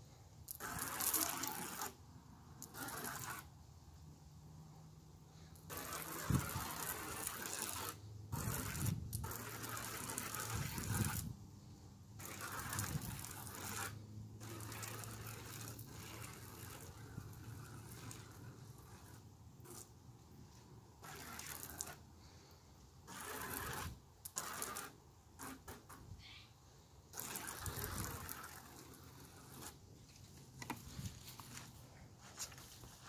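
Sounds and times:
spray paint can hissing: 0:00.5 - 0:02.0, 0:02.6 - 0:03.5, 0:05.6 - 0:11.4, 0:12.2 - 0:20.0, 0:21.0 - 0:22.1, 0:23.0 - 0:26.1, 0:27.1 - 0:29.8.

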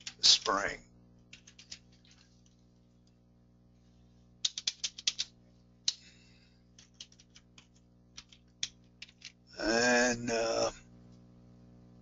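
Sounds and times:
keyboard typing: 0:00.0 - 0:00.6, 0:01.3 - 0:02.2, 0:04.4 - 0:05.3, 0:06.8 - 0:09.4
low electrical hum: 0:00.0 - 0:12.0.

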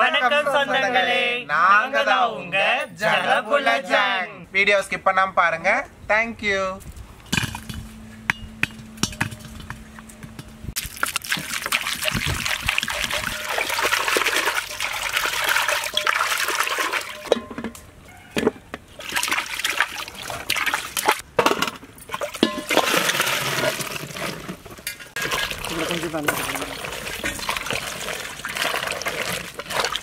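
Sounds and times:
water splashing into metal vessel: 0:10.8 - 0:17.8, 0:19.0 - 0:30.0.

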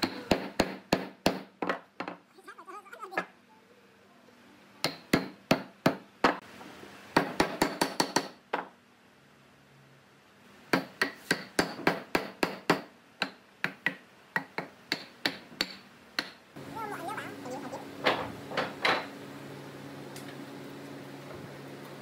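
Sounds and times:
hammer knocking on wooden block: 0:00.0 - 0:02.2.

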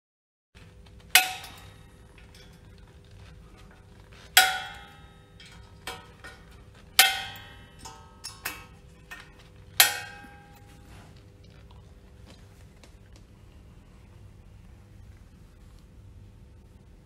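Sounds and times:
sharp metallic clinks: 0:01.1 - 0:02.9, 0:04.0 - 0:11.1.

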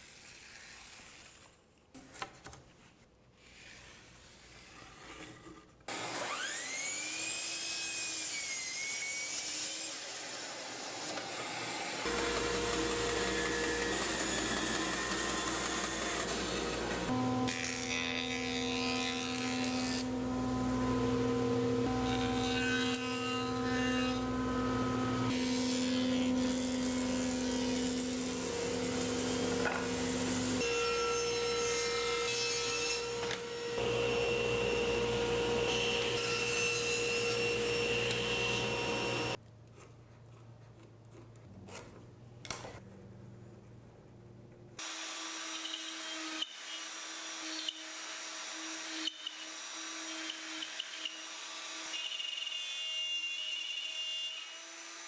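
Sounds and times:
table saw cutting: 0:05.9 - 0:39.4, 0:44.8 - 0:55.0
jointer running: 0:12.1 - 0:17.1
plunge router running: 0:12.1 - 0:17.4, 0:33.8 - 0:36.2, 0:37.4 - 0:39.4.

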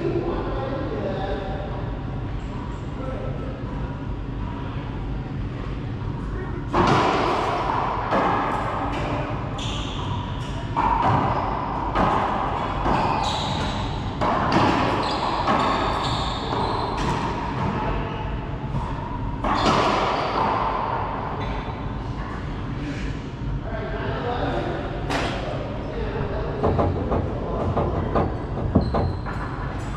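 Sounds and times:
ball hitting court walls: 0:06.7 - 0:17.8, 0:19.4 - 0:21.0.

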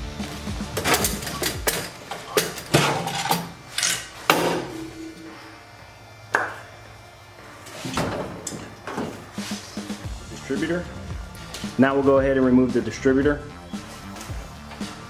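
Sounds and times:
metal clinks and knocks from tools: 0:00.8 - 0:04.1.

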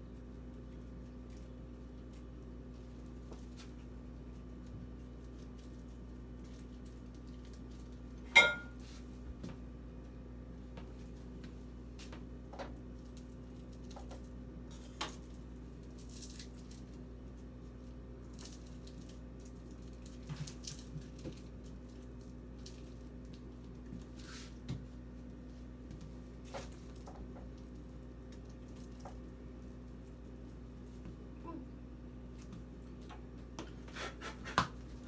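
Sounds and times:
popcorn crunches and rustles: 0:00.0 - 0:08.3, 0:12.0 - 0:24.7, 0:26.3 - 0:31.0
steady low hum: 0:00.0 - 0:35.0.

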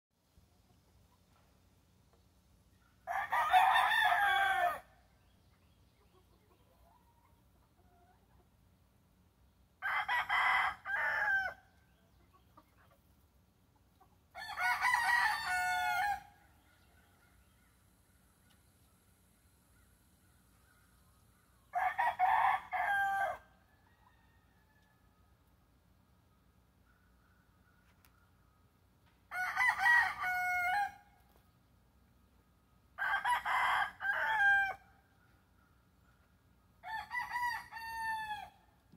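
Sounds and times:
rooster crowing: 0:03.0 - 0:04.9, 0:09.8 - 0:11.6, 0:14.4 - 0:16.4, 0:21.7 - 0:25.0, 0:29.3 - 0:31.0, 0:33.0 - 0:34.8, 0:36.8 - 0:38.6.

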